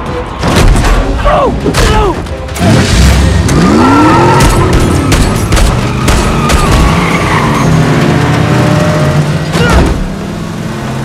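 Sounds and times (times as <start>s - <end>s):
car engine revving: 2.6s - 11.0s
tyre squeal: 3.9s - 7.9s.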